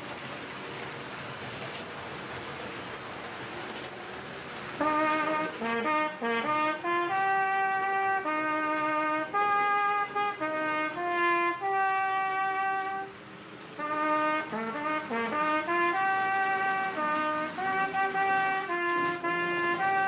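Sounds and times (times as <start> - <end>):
solo trumpet melody: 4.8 - 20.0.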